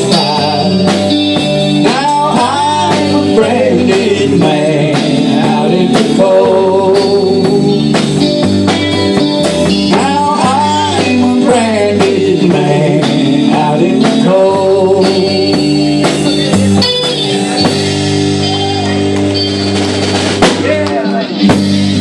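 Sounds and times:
person singing: 0.0 - 1.1, 1.8 - 7.8, 9.9 - 16.9
drum kit: 0.0 - 22.0
electric bass: 0.0 - 22.0
electric guitar: 0.0 - 22.0.

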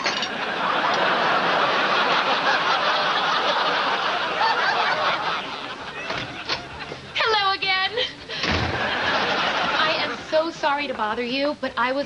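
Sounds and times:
studio audience laughing: 0.3 - 7.2, 8.3 - 10.4.

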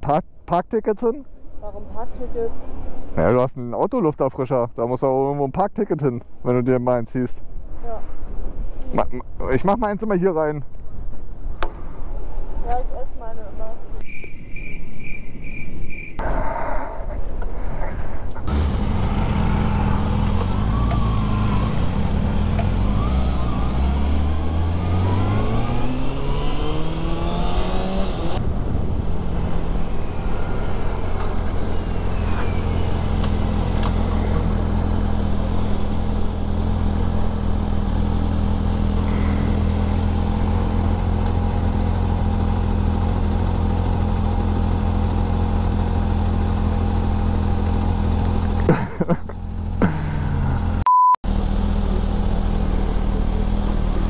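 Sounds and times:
motorcycle engine revving: 18.5 - 54.0.

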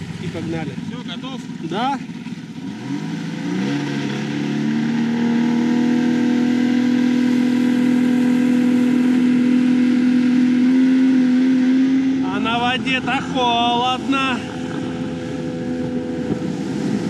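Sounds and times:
jet boat engine speeding up: 0.0 - 17.0.

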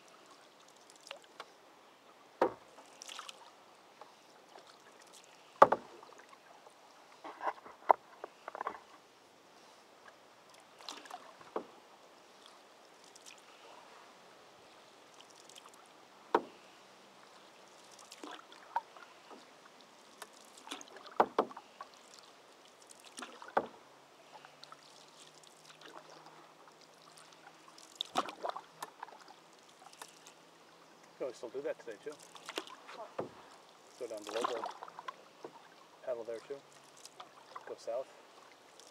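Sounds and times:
paddles dipping in water: 0.0 - 38.9
paddle knocking canoe: 2.4 - 2.9, 5.6 - 6.3, 10.7 - 11.9, 16.3 - 16.7, 20.2 - 22.0, 23.1 - 23.9, 28.0 - 30.2, 31.6 - 38.7.

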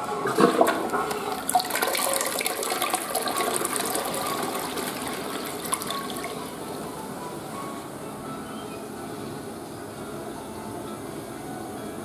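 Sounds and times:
toilet flushing: 0.0 - 7.0.

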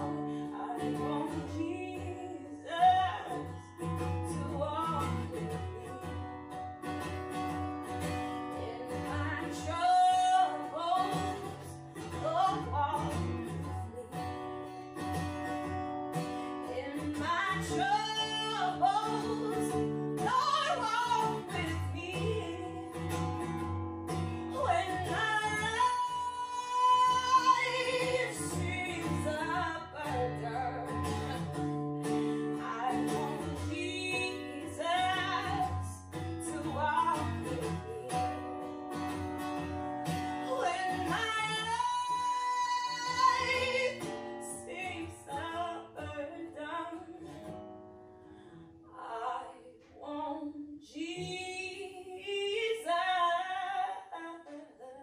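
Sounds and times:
person singing: 0.0 - 3.5, 8.5 - 14.4, 16.5 - 23.1, 24.5 - 38.6, 40.4 - 47.3
plucked acoustic guitar: 0.0 - 54.8.

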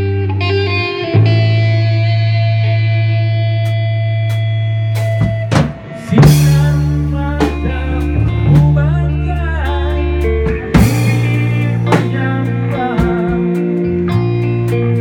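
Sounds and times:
live rock band playing: 0.0 - 15.0
drum hits: 5.0 - 8.9.

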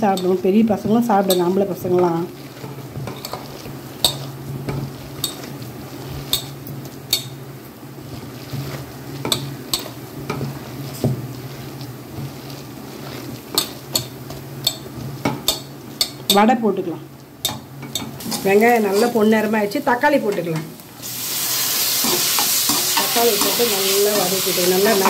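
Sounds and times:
hand kneading batter in bowl: 0.0 - 16.5.

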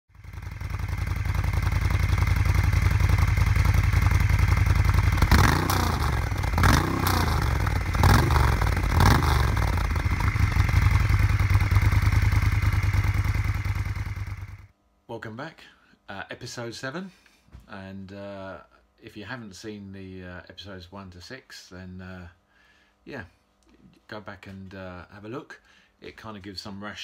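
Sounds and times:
motorcycle engine idling and revving: 0.1 - 14.7.

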